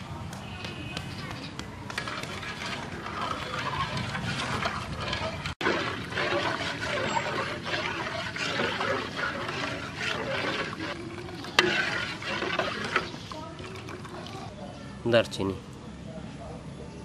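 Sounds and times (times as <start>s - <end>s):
metal ladle scraping pot: 1.9s - 14.4s
milk bubbling in a pot: 1.9s - 14.7s.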